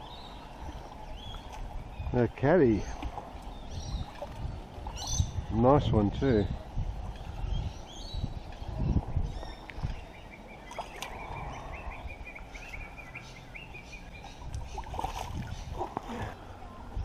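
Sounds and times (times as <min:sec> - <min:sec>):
bird chirping: 0:07.4 - 0:15.8.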